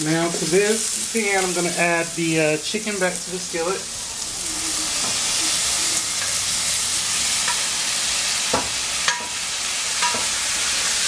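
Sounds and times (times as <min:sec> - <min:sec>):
chicken sizzling in hot oil: 0:00.0 - 0:11.0
metal bowl clinking against pan: 0:09.1 - 0:09.4, 0:10.0 - 0:10.3.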